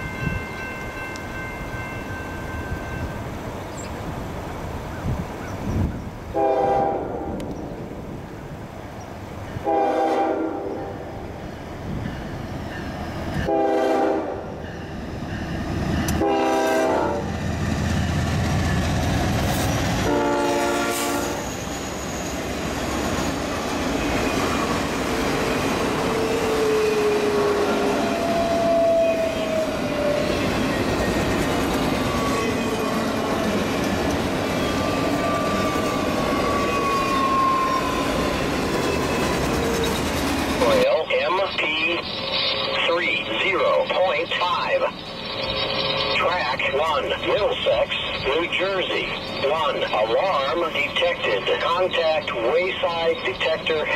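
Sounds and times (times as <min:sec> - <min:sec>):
train rumbling past: 0:00.0 - 0:53.9
locomotive air horn blasts: 0:06.3 - 0:07.4, 0:09.6 - 0:10.9, 0:13.4 - 0:14.5, 0:16.2 - 0:17.3, 0:20.0 - 0:21.5.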